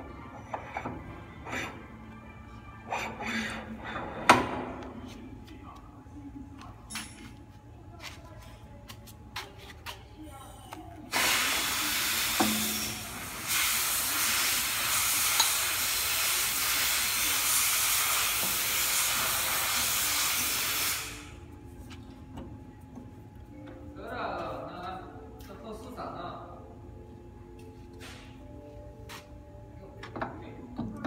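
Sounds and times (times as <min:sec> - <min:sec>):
compressed air hissing: 0:11.1 - 0:21.4.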